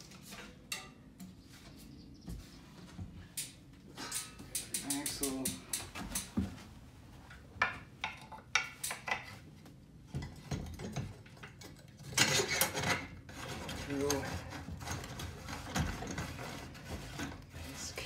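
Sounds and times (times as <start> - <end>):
metal scraping: 11.4 - 18.0.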